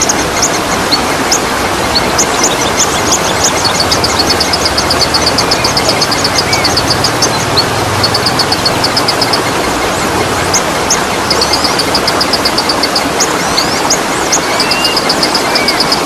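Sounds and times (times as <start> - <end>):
waterfall rushing: 0.0 - 16.0
bird short high chirps: 11.3 - 16.0
bird whistles: 11.3 - 16.0.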